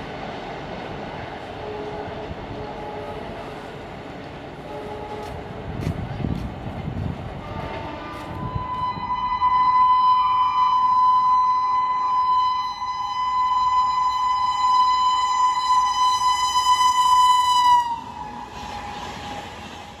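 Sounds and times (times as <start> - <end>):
rushing hiss of passing train: 0.0 - 20.0
locomotive air horn: 1.6 - 3.3, 4.6 - 5.6, 7.4 - 19.9.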